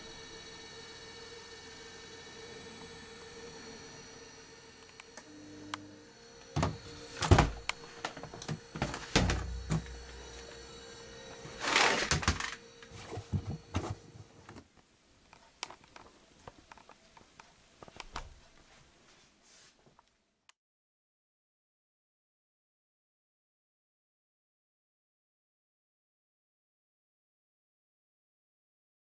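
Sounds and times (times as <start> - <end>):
washing machine humming: 0.0 - 14.7
knocks and thuds from machine door: 8.8 - 9.9.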